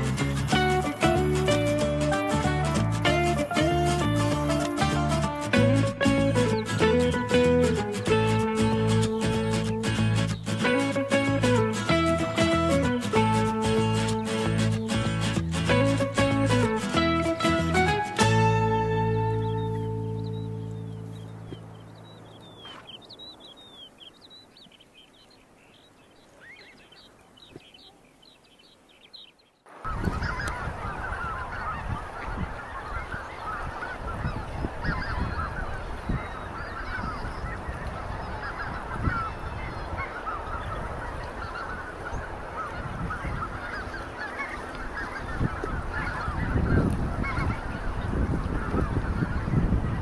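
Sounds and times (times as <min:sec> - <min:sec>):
waterfowl honking and calling: 0:00.0 - 0:28.0, 0:29.8 - 0:50.0
small birds chirping: 0:00.0 - 0:50.0
low rumble of wind or water: 0:29.9 - 0:50.0.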